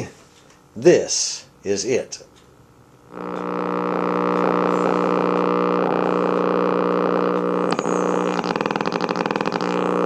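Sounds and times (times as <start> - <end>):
radio droning hum: 0.8 - 10.0
radio putt-putt pulsing: 3.1 - 10.0.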